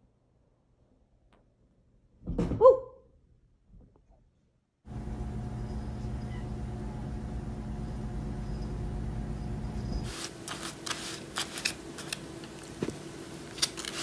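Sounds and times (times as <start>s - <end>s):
steady low hum: 4.9s - 13.5s
paper case clicking and crinkling: 13.5s - 14.0s.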